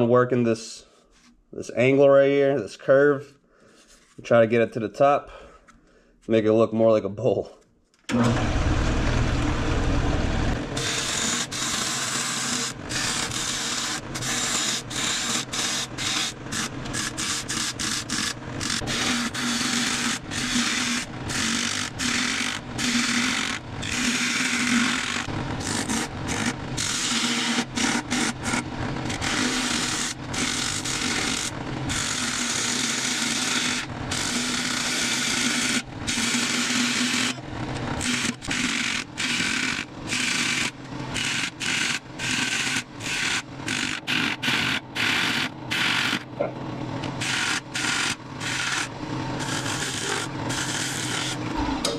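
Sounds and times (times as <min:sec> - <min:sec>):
lathe low hum: 0:08.1 - 0:51.9
gouge scraping hard wood: 0:10.8 - 0:37.4, 0:47.2 - 0:51.4.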